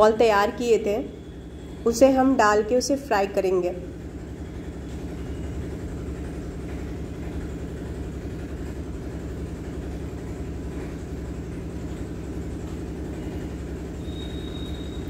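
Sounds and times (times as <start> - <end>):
low motor rumble and hum: 3.7 - 15.0.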